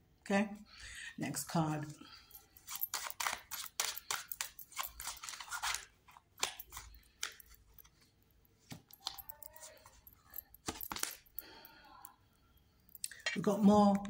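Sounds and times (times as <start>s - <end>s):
cards being shuffled: 2.6s - 8.0s, 8.6s - 10.0s, 10.6s - 11.3s.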